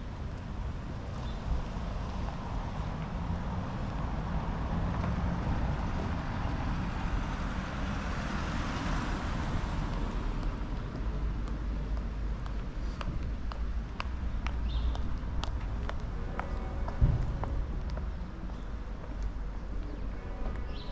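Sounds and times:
low rumble of traffic: 0.0s - 20.9s
car passing: 1.7s - 14.2s.

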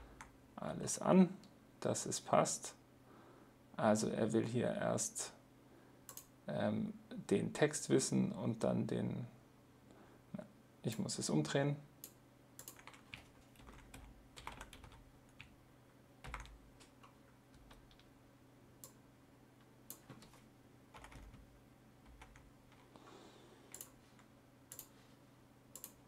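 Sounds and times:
keyboard keystrokes and clicks: 12.0s - 15.5s, 16.2s - 18.1s, 19.9s - 21.4s, 23.7s - 24.9s, 25.7s - 26.0s.

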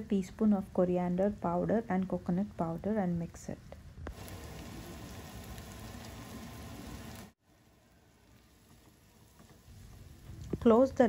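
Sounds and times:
faint hiss: 2.0s - 11.0s
food sizzling in a frying pan: 4.1s - 11.0s.

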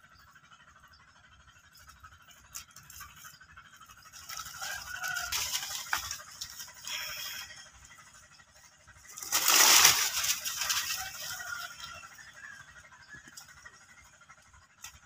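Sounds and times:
dry leaves rustling and crackling: 4.0s - 7.6s, 8.9s - 12.6s.

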